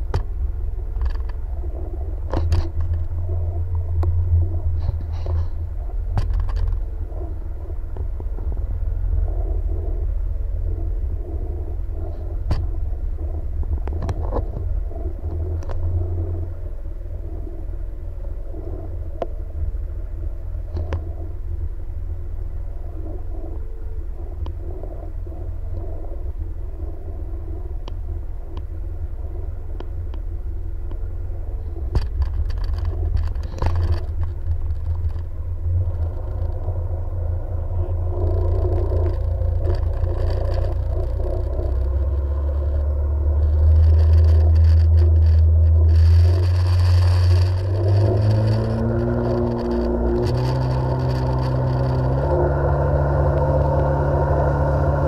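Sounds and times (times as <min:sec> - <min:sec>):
sharp clicks and knocks: 0:00.0 - 0:01.4, 0:02.2 - 0:04.2, 0:06.1 - 0:06.9, 0:12.4 - 0:12.7, 0:20.7 - 0:21.1, 0:31.8 - 0:36.8, 0:38.2 - 0:52.6
jet ski engine running: 0:00.0 - 0:55.0.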